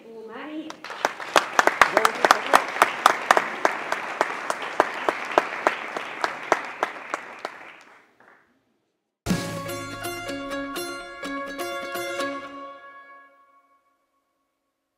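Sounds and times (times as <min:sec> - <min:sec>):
audience applauding: 0:00.7 - 0:08.4.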